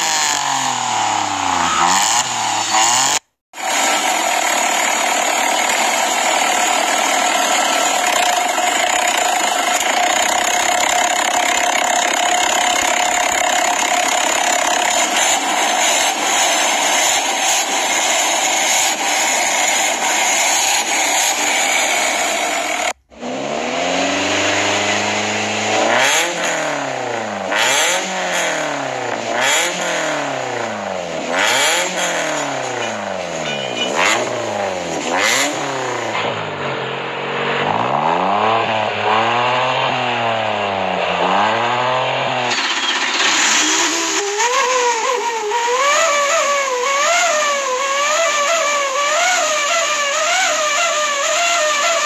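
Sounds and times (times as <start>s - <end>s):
exhaust cracks: 0.0s - 23.5s
car engine revving: 0.0s - 52.0s.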